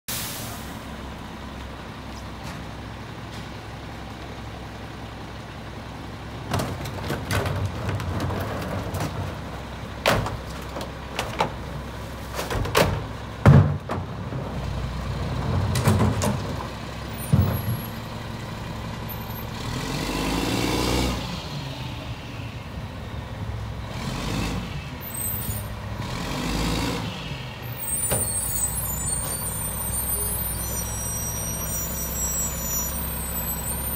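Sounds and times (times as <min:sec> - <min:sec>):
diesel engine idling: 0:00.2 - 0:07.0
engine revving: 0:19.6 - 0:21.6, 0:23.8 - 0:24.9, 0:26.0 - 0:27.4.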